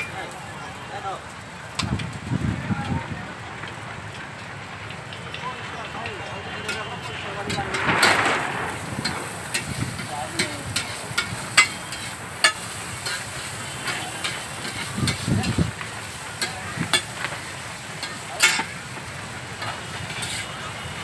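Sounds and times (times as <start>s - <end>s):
frying sizzle: 0.0s - 21.0s
metal spatula scraping griddle: 6.7s - 15.6s, 16.4s - 17.3s, 18.0s - 18.8s, 19.6s - 20.6s.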